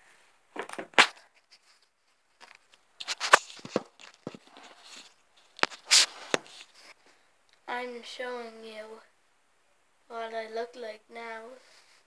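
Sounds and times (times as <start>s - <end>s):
device handling knocks and scrapes: 2.4s - 6.7s.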